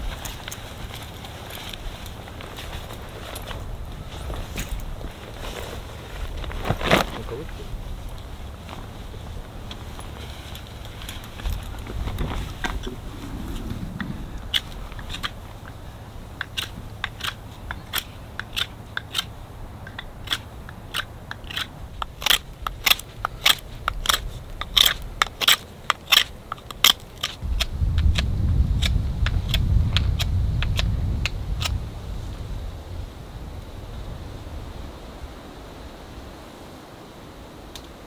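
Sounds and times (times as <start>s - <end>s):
wind buffeting microphone: 0.0s - 36.5s
sharp crackling pops: 6.2s - 31.9s.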